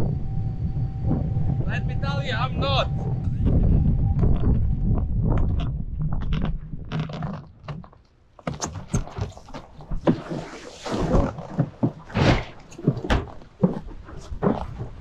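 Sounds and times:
wind on microphone: 0.0s - 7.3s.

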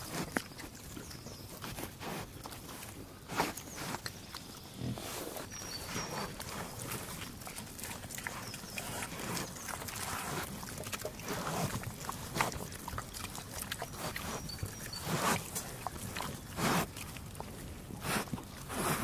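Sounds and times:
pigs grunting and snuffling: 0.0s - 19.0s
chewing clicks: 0.1s - 4.7s, 5.5s - 19.0s.

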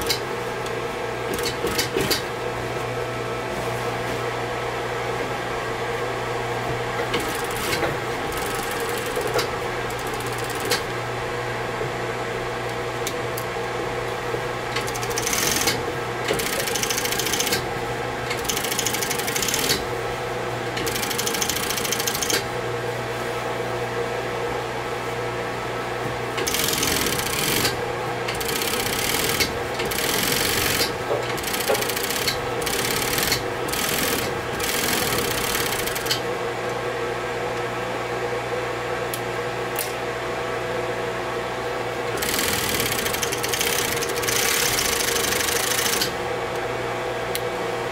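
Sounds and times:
sewing machine hum: 7.1s - 10.9s, 14.7s - 20.0s, 20.7s - 22.5s, 26.4s - 36.3s, 42.1s - 46.3s
sewing machine stitching: 14.8s - 17.7s, 18.3s - 19.9s, 20.8s - 22.4s, 26.4s - 36.2s, 42.1s - 46.1s.

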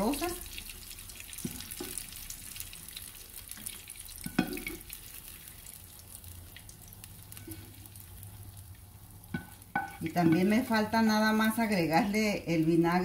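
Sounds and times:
onions sizzling in frying pan: 0.0s - 13.0s
spoon knocking against pan: 4.2s - 4.8s, 9.3s - 10.5s.

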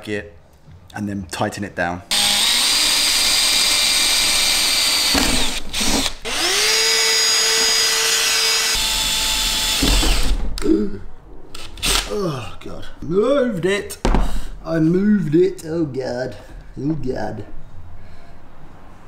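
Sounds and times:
cordless drill drilling metal: 2.1s - 10.3s
handheld vacuum whining: 2.1s - 10.3s.

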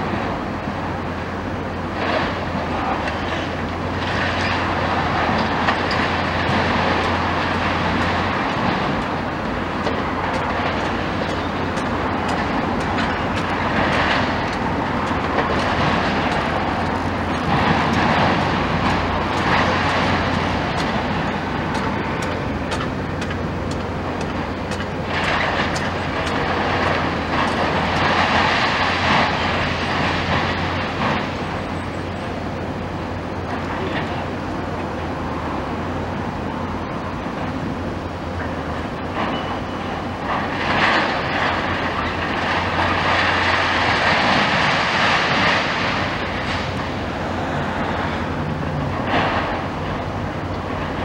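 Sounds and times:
excavator engine under load: 0.0s - 51.0s
building material crunching: 2.0s - 32.2s.

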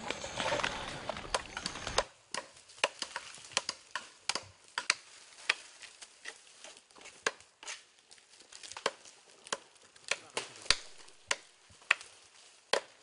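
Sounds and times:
blades chopping tree trunk: 8.7s - 12.0s.

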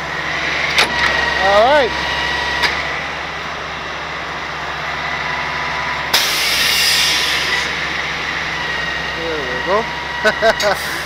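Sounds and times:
truck diesel engine whining: 0.0s - 11.0s
compressed air hissing: 6.1s - 7.8s.

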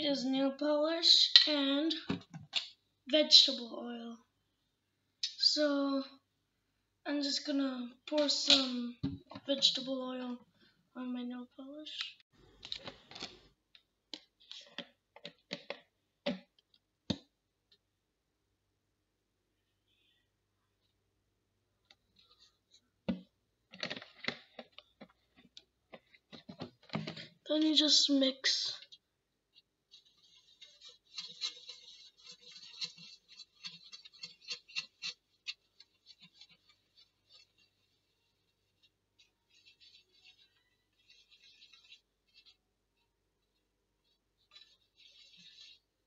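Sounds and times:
stick scraping metal tray: 29.9s - 37.7s.

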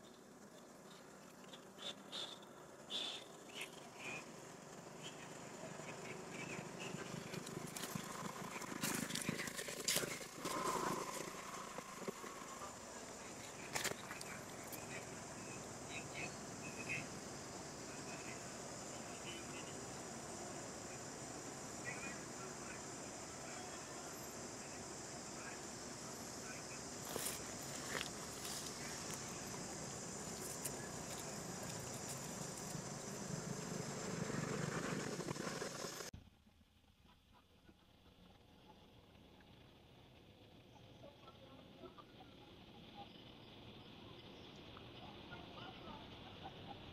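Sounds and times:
high-pitched insect chorus: 0.0s - 36.1s
dry leaves crackling: 6.7s - 12.6s, 27.0s - 32.9s.

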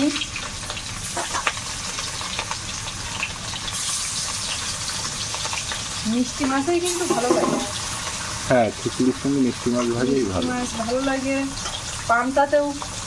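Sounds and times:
crackles in frying oil: 0.0s - 13.0s
fish frying in hot oil: 0.0s - 13.0s.

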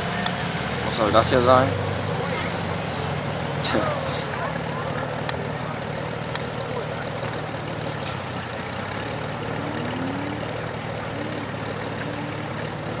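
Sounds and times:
car engine running: 0.0s - 13.0s
short rising whines: 7.3s - 13.0s.

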